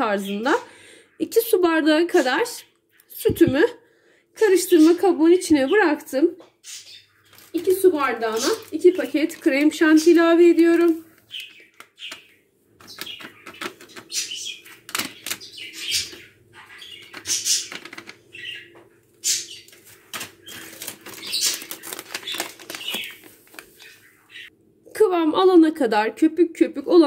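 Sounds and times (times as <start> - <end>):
foil sachets crinkling: 7.2 - 15.6, 19.6 - 24.2.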